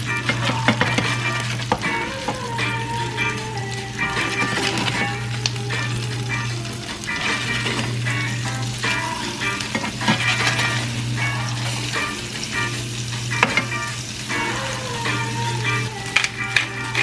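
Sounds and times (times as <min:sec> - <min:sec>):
crab cakes sizzling in a pan: 0:00.0 - 0:17.0
metal spatula scraping a pan: 0:04.0 - 0:05.2, 0:07.0 - 0:08.4, 0:09.5 - 0:11.9.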